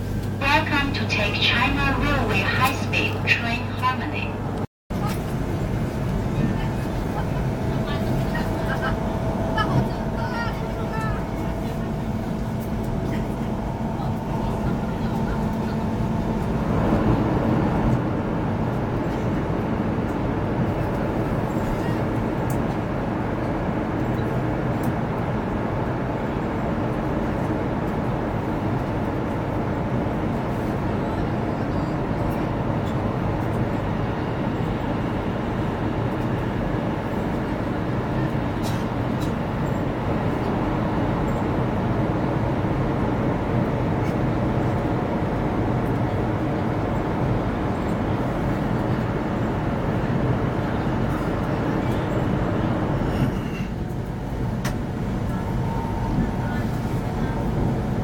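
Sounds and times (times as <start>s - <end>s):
train rolling rumble: 0.0s - 58.0s
train cabin air rush: 52.7s - 58.0s.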